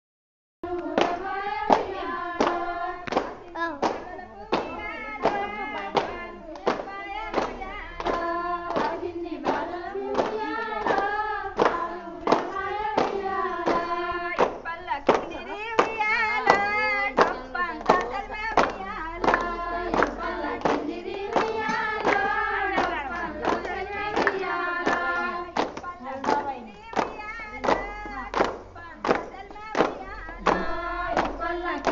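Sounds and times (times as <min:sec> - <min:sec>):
women singing folk song: 0:00.6 - 0:31.9
hands clapping in time: 0:00.7 - 0:31.9.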